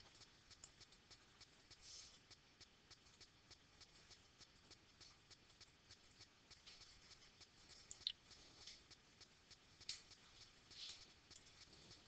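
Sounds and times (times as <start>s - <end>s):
light regular ticking: 0.0s - 12.0s.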